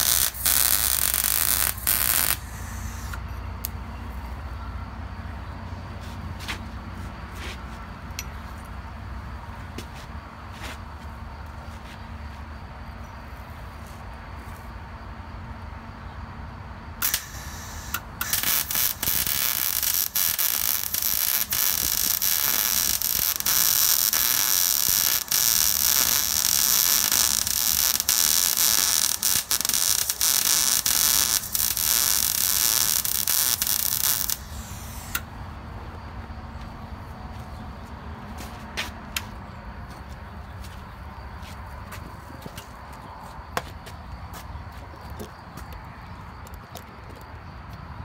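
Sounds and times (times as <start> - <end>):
welder arc crackling: 0.0 - 3.8, 17.0 - 35.3.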